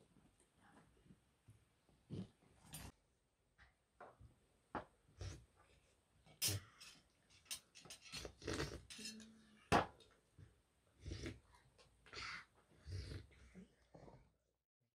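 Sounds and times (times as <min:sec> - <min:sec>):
spoons clinking against metal bowls: 0:06.4 - 0:09.4.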